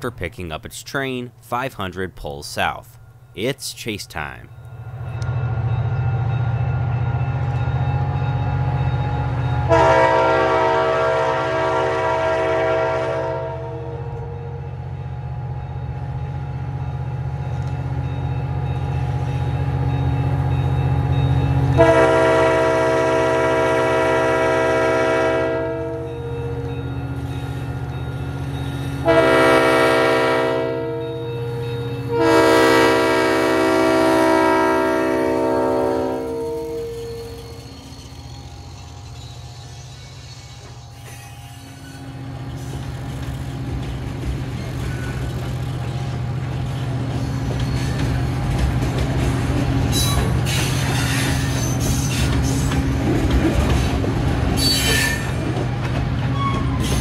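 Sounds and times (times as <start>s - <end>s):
locomotive air horn blasts: 9.7s - 14.6s, 21.8s - 26.1s, 29.0s - 31.2s, 32.1s - 37.3s.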